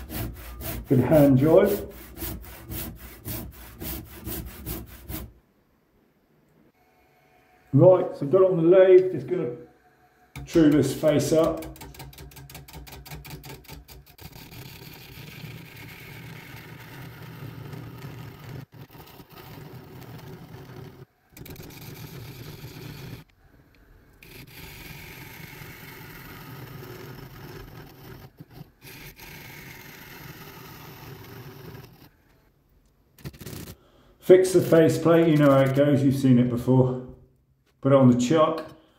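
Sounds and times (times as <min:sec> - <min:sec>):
lathe tool scraping wood: 0:00.0 - 0:05.3, 0:10.3 - 0:23.3, 0:24.2 - 0:32.2, 0:33.2 - 0:35.9.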